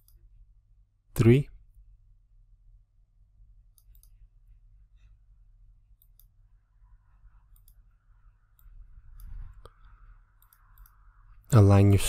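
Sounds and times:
computer mouse clicks: 0.0s - 0.2s, 3.7s - 4.2s, 6.0s - 6.4s, 7.5s - 7.9s, 8.5s - 11.0s
low steady hum: 0.0s - 12.0s.

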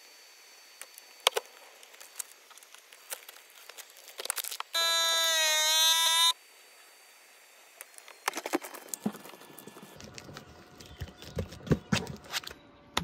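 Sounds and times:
vacuum sealer whine: 0.0s - 11.0s.

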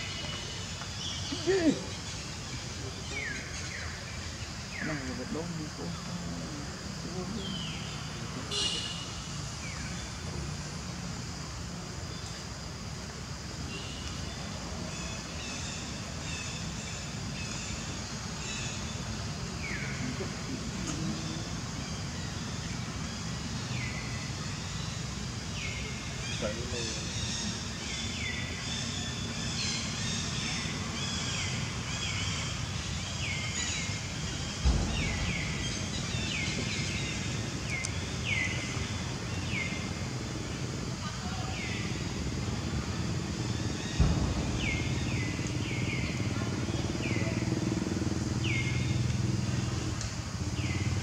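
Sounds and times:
low rumble: 43.8s - 48.4s.

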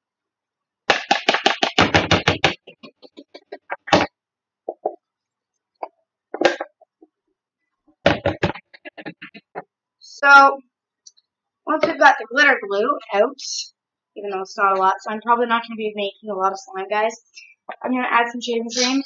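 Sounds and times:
plastic bottle knocking: 0.9s - 4.1s, 6.3s - 6.8s, 8.0s - 9.6s.

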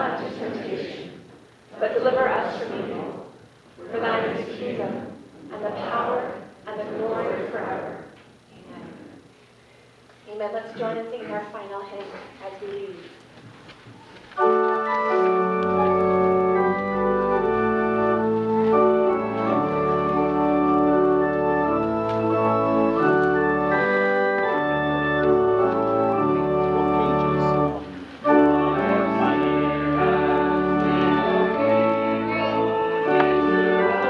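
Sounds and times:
organ playing a hymn: 14.2s - 34.0s.

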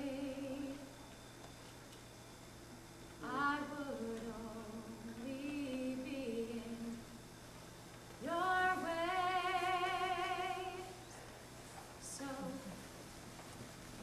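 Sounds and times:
woman singing unaccompanied: 0.0s - 1.0s, 3.2s - 7.1s, 8.2s - 11.0s, 12.0s - 12.8s.

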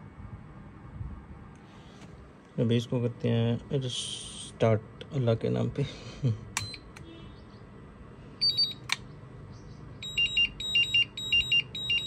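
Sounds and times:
two-tone beeping alarm: 8.4s - 8.8s, 10.0s - 12.0s
charger beeping: 8.4s - 9.0s, 10.0s - 12.0s.

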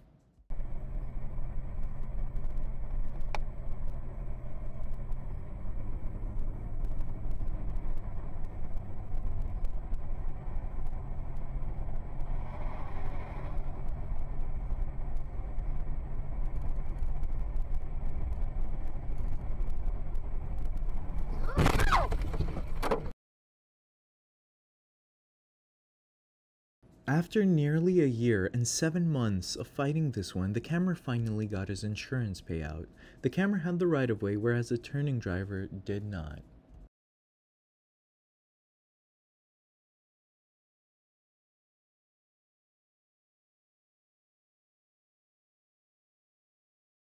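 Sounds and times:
car engine and road noise: 0.0s - 23.1s
car collision crash: 21.4s - 23.1s.

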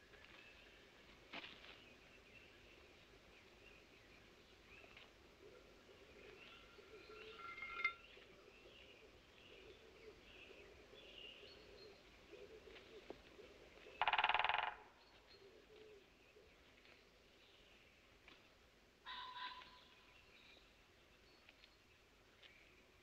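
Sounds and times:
faint birdsong: 0.0s - 23.0s
woodpecker drumming: 14.0s - 14.9s.

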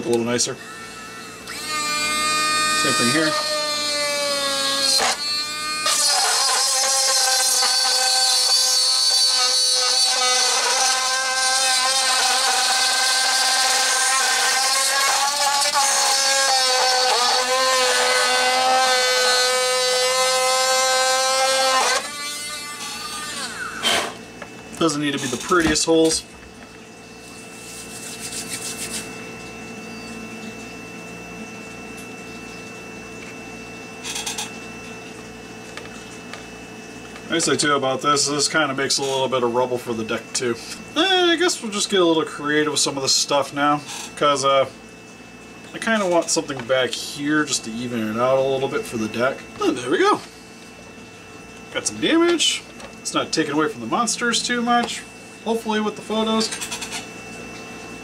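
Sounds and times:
steady background hum: 0.0s - 58.0s
rotary tool whining: 0.6s - 24.2s, 34.0s - 34.6s, 43.8s - 44.2s, 56.2s - 57.1s.

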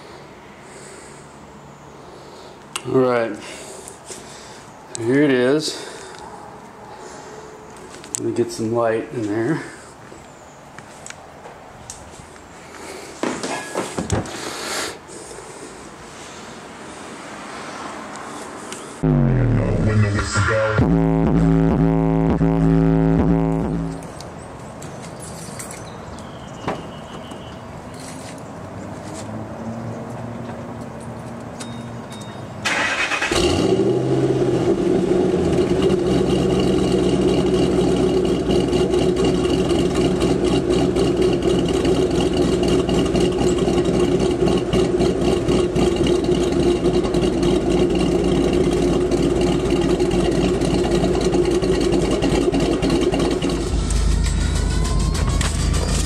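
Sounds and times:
deep bass: 19.0s - 24.1s, 34.4s - 56.0s
engine cranking: 32.6s - 33.6s, 37.6s - 56.0s
car engine idling with low rumble: 33.4s - 56.0s.

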